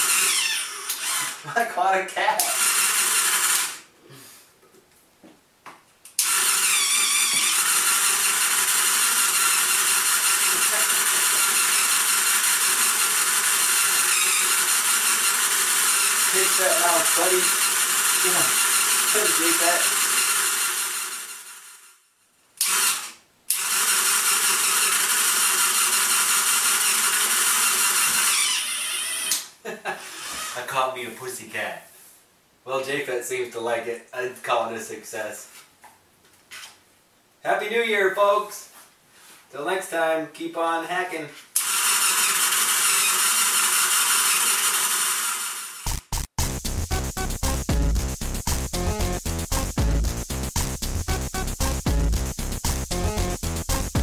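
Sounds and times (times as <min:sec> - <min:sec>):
small electric motor whirring: 0:00.0 - 0:01.4, 0:02.5 - 0:03.8, 0:06.2 - 0:22.0, 0:22.6 - 0:30.6, 0:41.6 - 0:46.1.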